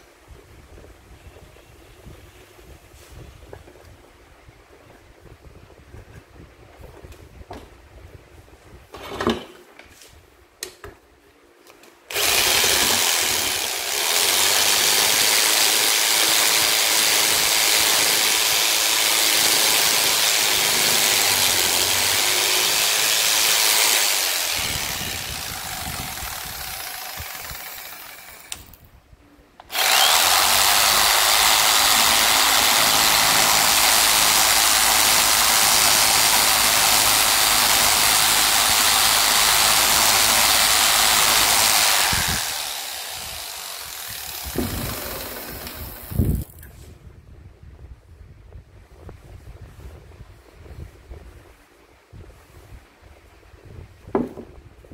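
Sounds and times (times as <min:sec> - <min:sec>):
electric jigsaw sanding wood: 0:12.1 - 0:28.8, 0:29.6 - 0:46.6.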